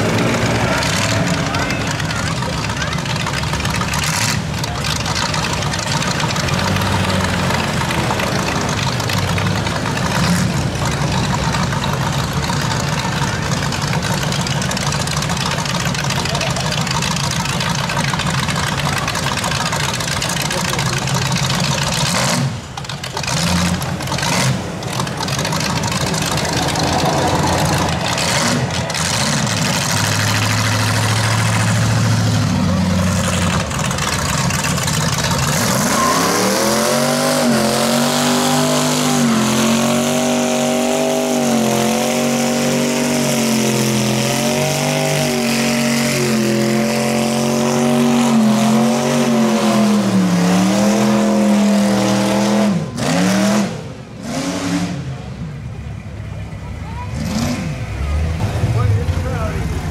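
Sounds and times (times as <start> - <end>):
engine revving high in burnout: 0.0 - 3.0, 20.4 - 22.6, 23.2 - 55.4, 57.1 - 59.9
tyres spinning: 0.0 - 49.4
street traffic: 0.0 - 59.9.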